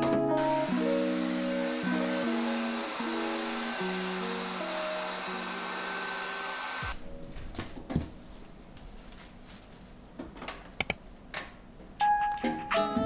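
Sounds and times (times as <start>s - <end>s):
hair dryer blowing: 0.4s - 7.0s.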